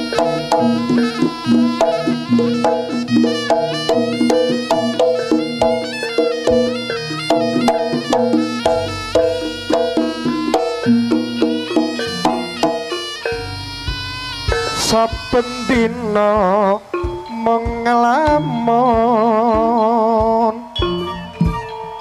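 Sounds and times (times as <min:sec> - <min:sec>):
gamelan percussion: 0:00.0 - 0:22.0
reedy wind instrument melody: 0:00.0 - 0:22.0.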